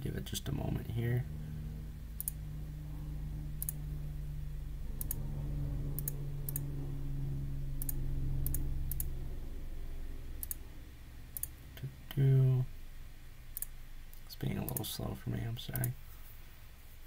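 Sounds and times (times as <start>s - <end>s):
steady low hum: 0.0s - 17.0s
computer mouse clicks: 10.4s - 10.6s, 15.7s - 16.0s.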